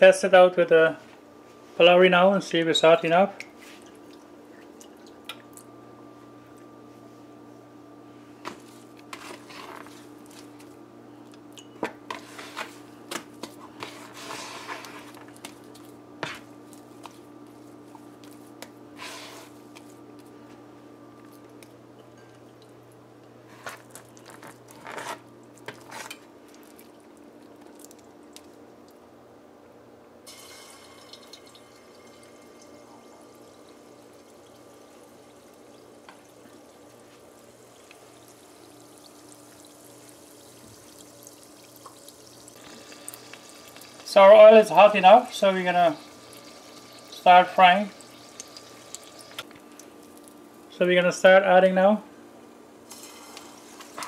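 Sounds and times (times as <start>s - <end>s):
batter frying in oil: 8.5s - 10.7s, 12.1s - 20.2s, 30.3s - 50.8s, 52.8s - 54.0s.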